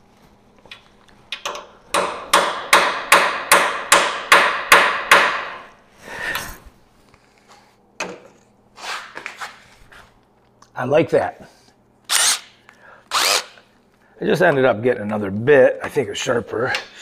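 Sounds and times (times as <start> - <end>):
hammer striking metal punch: 1.4 - 5.7.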